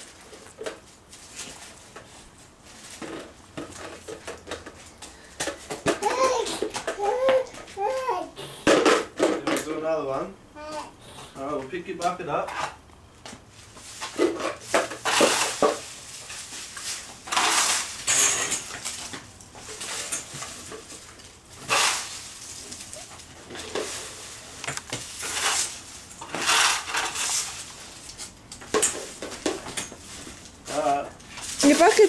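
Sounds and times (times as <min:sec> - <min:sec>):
broom sweeping dry leaves: 0:00.0 - 0:03.4, 0:13.5 - 0:32.0
plastic dustpan scraping paving: 0:13.6 - 0:32.0.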